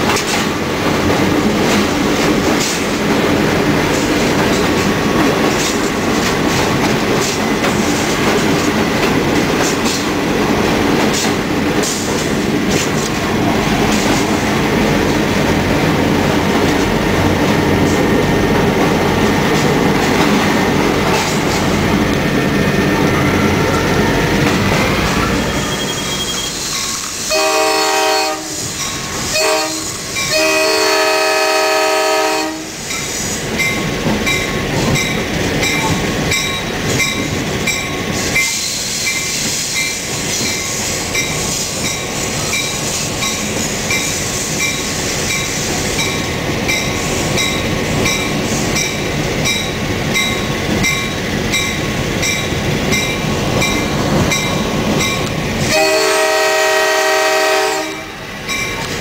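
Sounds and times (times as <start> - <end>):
locomotive running on rails: 0.0 - 59.0
locomotive air horn blasts: 27.2 - 28.7, 29.3 - 32.8, 55.7 - 58.2.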